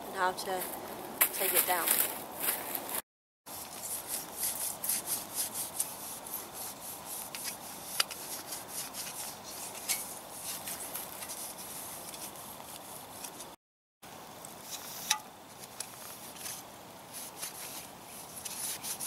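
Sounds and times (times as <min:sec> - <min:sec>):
moss scrubbing on metal: 0:03.5 - 0:13.6, 0:16.0 - 0:19.0.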